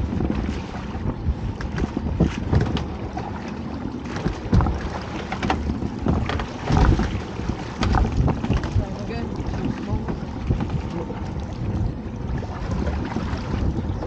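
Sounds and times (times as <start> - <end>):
water sloshing against boat hull: 0.0 - 14.0
wind buffeting microphone: 0.0 - 14.0
splashes and knocks: 1.5 - 11.3, 12.4 - 13.7.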